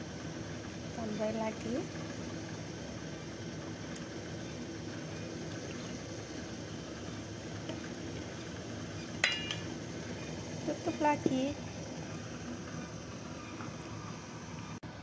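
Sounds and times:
boiling water hissing: 0.0s - 15.0s
sharp metallic clink: 9.2s - 9.6s.

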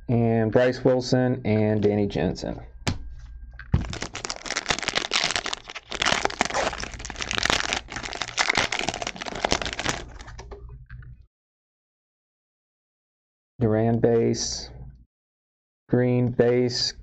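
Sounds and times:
foil wrapper crinkling: 3.8s - 10.4s.

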